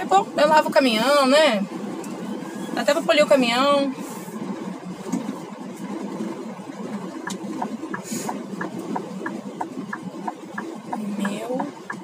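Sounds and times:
diesel engine idling: 0:00.0 - 0:12.0
turn signal ticking: 0:04.7 - 0:12.0.

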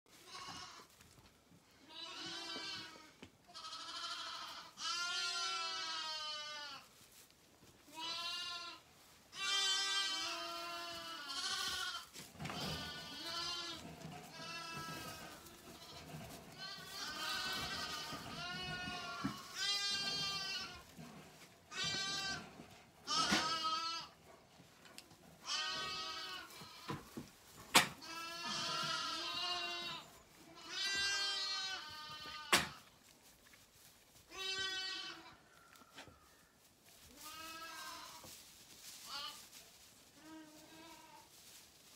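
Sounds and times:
lambs bleating: 0:00.2 - 0:00.9, 0:01.8 - 0:06.8, 0:07.9 - 0:20.8, 0:21.7 - 0:24.2, 0:25.4 - 0:27.0, 0:28.0 - 0:32.9, 0:34.3 - 0:35.4, 0:37.1 - 0:38.3.

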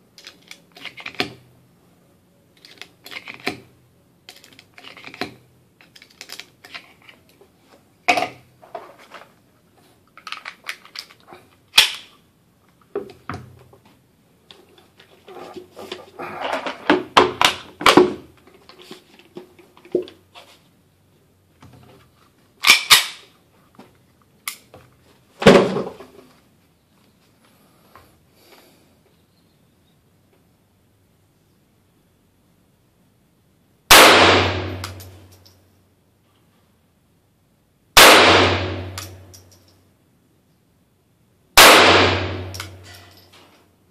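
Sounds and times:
pistol metallic clicks and clacks: 0:22.6 - 0:23.2, 0:34.6 - 0:35.6, 0:38.4 - 0:39.8, 0:41.9 - 0:43.3.

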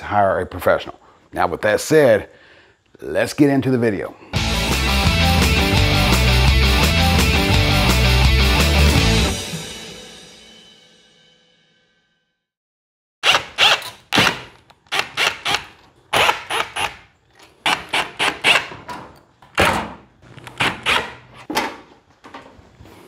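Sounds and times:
screwdriver squeaking on screws: 0:13.2 - 0:14.2, 0:14.8 - 0:18.8, 0:20.3 - 0:21.3.

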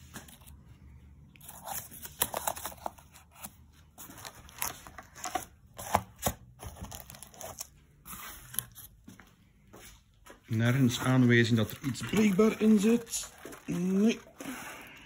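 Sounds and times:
plastic wrap crinkling: 0:10.6 - 0:15.0.

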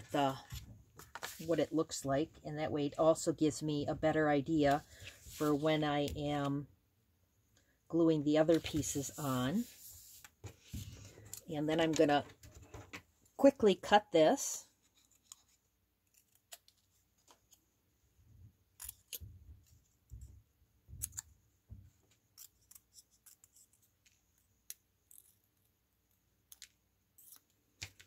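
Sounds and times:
scissors snipping paper: 0:15.2 - 0:16.8, 0:22.2 - 0:24.0.

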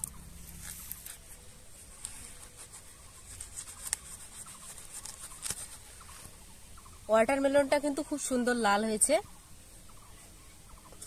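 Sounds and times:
knife cutting watermelon rind: 0:02.4 - 0:05.8.

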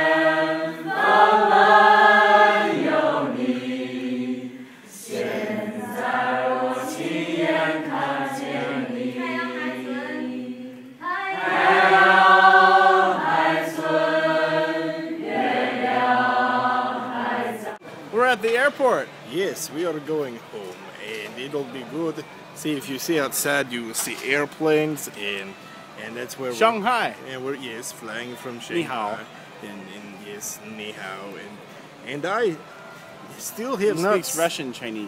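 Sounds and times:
group of people singing: 0:00.0 - 0:17.8.

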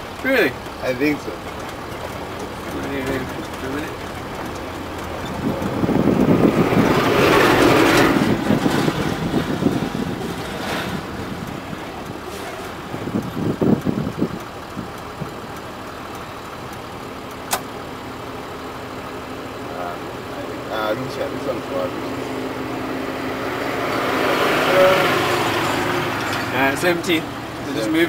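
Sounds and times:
rattles: 0:00.0 - 0:15.5, 0:25.5 - 0:28.0
truck engine running: 0:00.0 - 0:28.0
truck passing by: 0:00.0 - 0:28.0
sharp click: 0:17.4 - 0:17.8.

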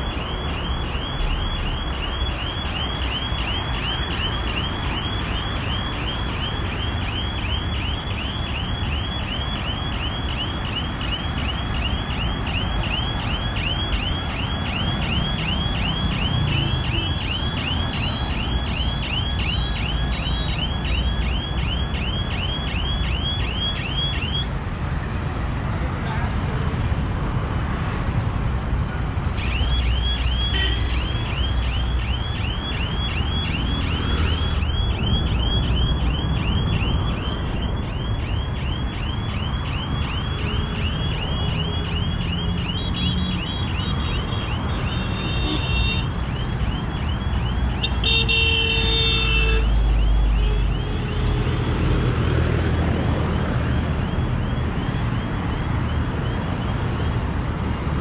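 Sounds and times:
electronic alarm chirping: 0:00.0 - 0:24.5, 0:29.4 - 0:48.1
road traffic passing: 0:00.0 - 0:58.0
vehicle horn: 0:30.5 - 0:31.0, 0:44.9 - 0:46.0, 0:47.9 - 0:49.7.

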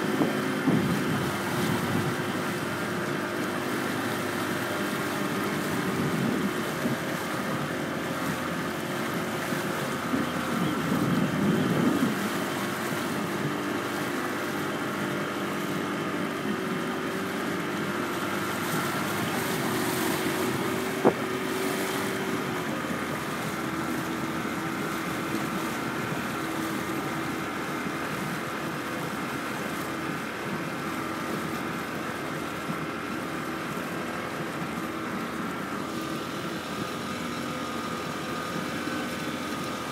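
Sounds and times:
wind on microphone: 0:00.0 - 0:02.5, 0:05.8 - 0:07.2, 0:09.8 - 0:12.8, 0:18.6 - 0:22.5
boat motor humming: 0:00.0 - 0:39.9
water noise: 0:00.0 - 0:39.9.

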